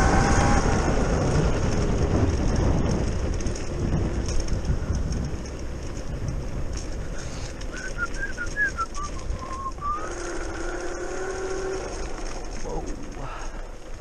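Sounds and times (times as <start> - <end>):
electric scooter whine: 0.0 - 14.0
wind rumbling on microphone: 0.0 - 14.0
whistle-like notes: 7.7 - 10.1.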